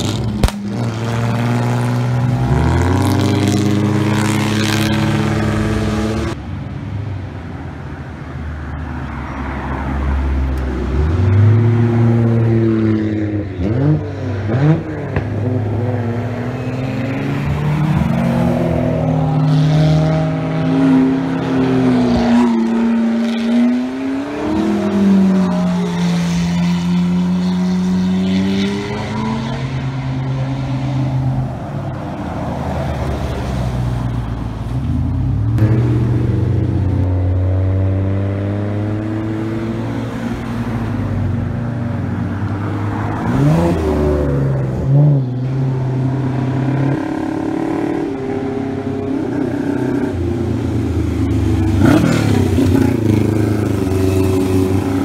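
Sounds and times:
car engines driving past: 0.0s - 55.0s.

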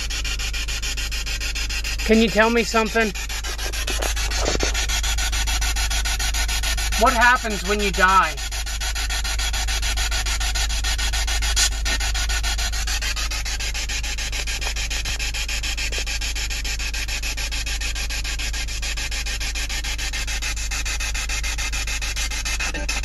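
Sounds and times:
hissing static with stutter: 2.0s - 5.4s
sharp crackle: 3.0s - 5.8s.

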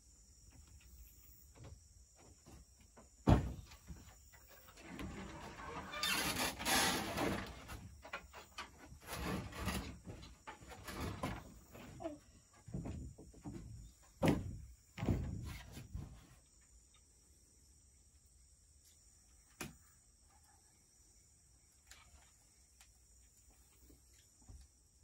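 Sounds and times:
thumps on plank floor: 3.2s - 4.1s, 12.6s - 16.2s
wooden door shutting: 3.2s - 4.1s.

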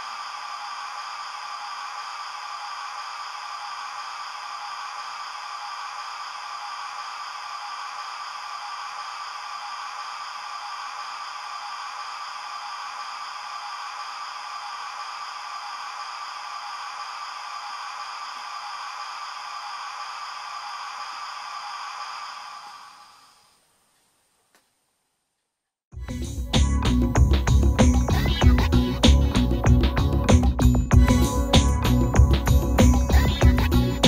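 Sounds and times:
locomotive steam hiss from small speaker: 0.0s - 23.6s, 30.9s - 34.0s.

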